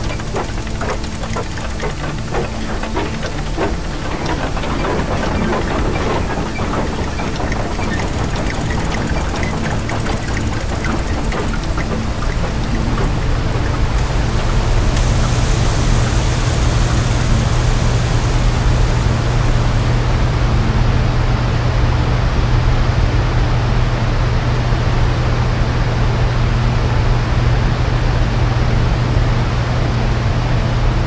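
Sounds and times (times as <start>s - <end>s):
deep hum: 0.0s - 21.7s.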